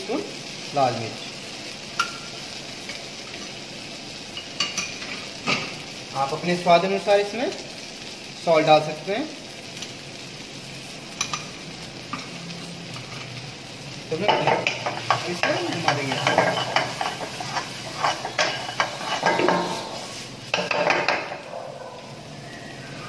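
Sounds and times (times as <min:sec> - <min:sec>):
food sizzling in hot oil: 0:00.0 - 0:23.0
metal ladle scraping a pan: 0:14.2 - 0:22.0.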